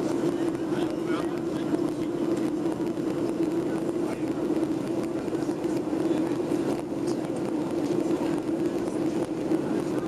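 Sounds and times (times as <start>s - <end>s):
constant low hum: 0.0s - 10.0s
jet engines droning: 0.0s - 10.0s.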